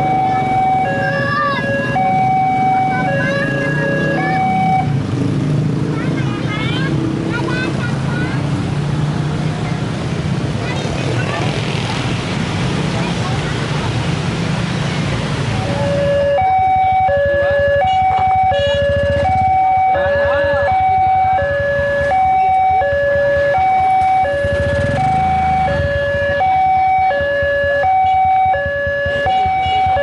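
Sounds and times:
two-tone crossing alarm: 0.0 - 5.0, 15.6 - 30.0
motorbike engine: 0.0 - 30.0
road traffic: 0.0 - 30.0.

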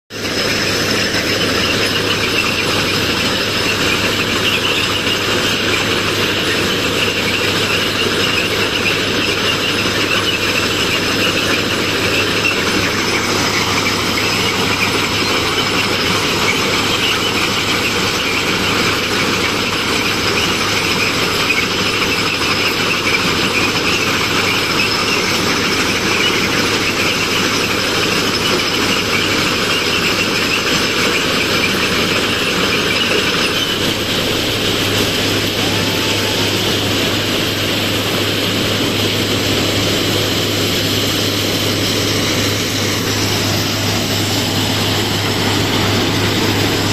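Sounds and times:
ballast cleaning machine engine: 0.1 - 46.9.

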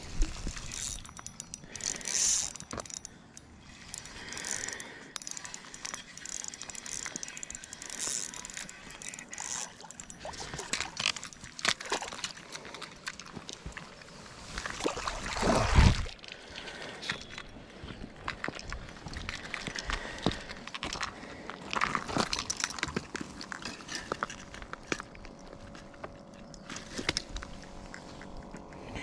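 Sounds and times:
fishing reel cranking: 0.3 - 12.4
reel clicks: 0.4 - 14.1.

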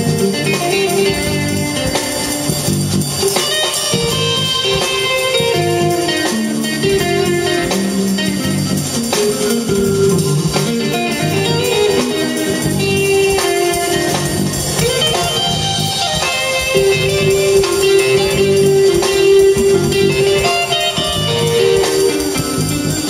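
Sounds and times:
drum kit: 0.0 - 23.0
electric guitar solo: 0.0 - 23.0
walking electric bass: 0.0 - 23.0.

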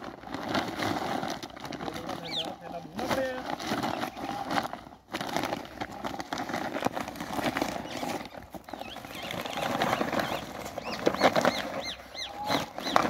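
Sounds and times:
clicks and scuffs on gravel: 0.0 - 13.0
plastic sack crinkling: 0.0 - 13.0
high chirps: 8.7 - 13.0.

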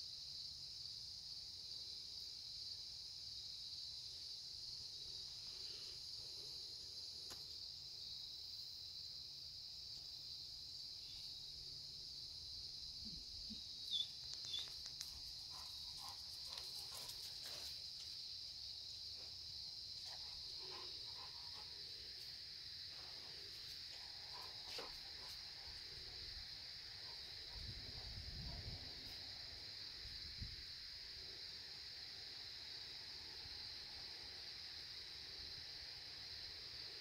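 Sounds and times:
high-pitched insect chorus: 0.0 - 37.0
faint clicks: 14.2 - 15.2.

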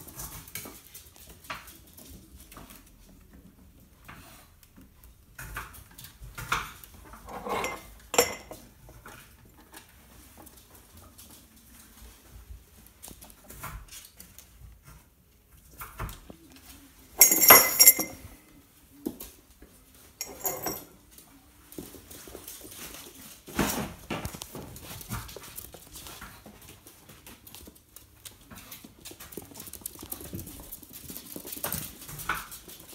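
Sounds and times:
rattling clatters: 17.2 - 18.3, 20.2 - 20.9
claws clicking on tile floor: 24.2 - 32.9.

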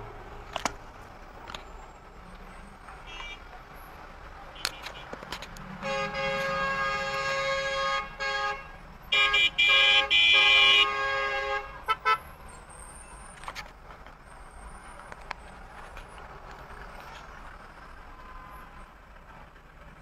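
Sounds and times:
street traffic noise: 0.0 - 20.0
car horn honking: 2.9 - 3.6, 4.5 - 12.3.

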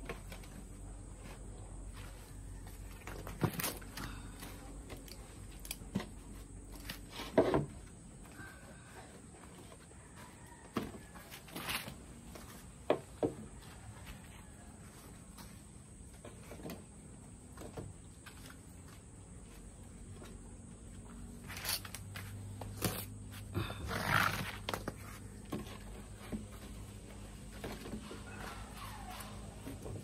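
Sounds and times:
dry frond scraping on concrete: 21.3 - 29.5.

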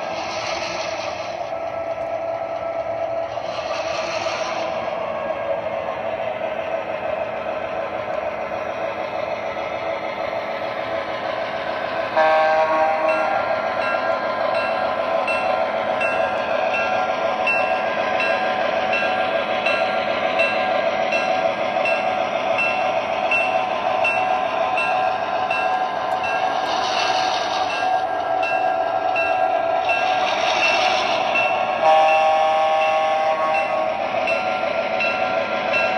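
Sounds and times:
recorded diesel engine drone: 0.0 - 35.9
train horn blast: 12.2 - 13.4, 31.8 - 33.9.

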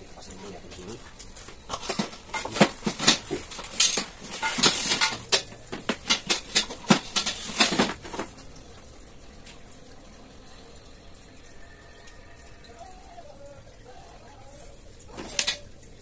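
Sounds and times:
steel bars clanking together: 1.2 - 8.3, 15.1 - 15.7.

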